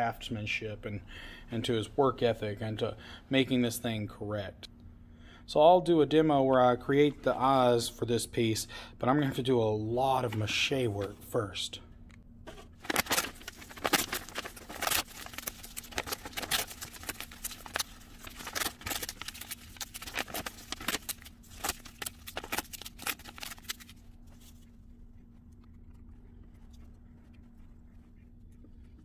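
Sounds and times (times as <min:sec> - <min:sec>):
paper tearing: 0:12.8 - 0:24.6.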